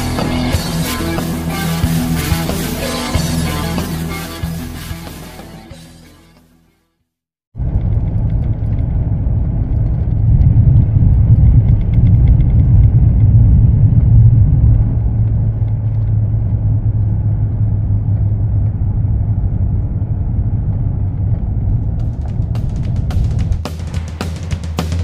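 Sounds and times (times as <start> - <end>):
car interior road noise: 7.6 - 24.1.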